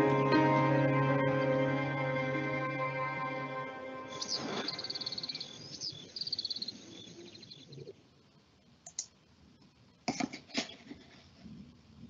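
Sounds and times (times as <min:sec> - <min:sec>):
rhythmic high chirping: 0:00.0 - 0:06.8
computer mouse clicks: 0:08.8 - 0:09.1.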